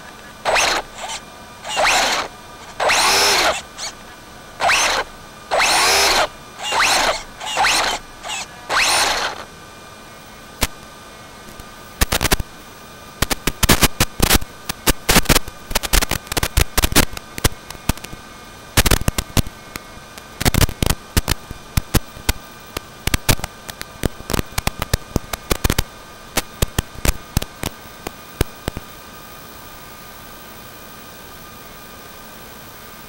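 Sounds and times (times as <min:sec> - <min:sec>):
faint steady whines: 0:00.0 - 0:33.0
crackling pops: 0:10.6 - 0:10.9
static hiss: 0:11.5 - 0:18.2.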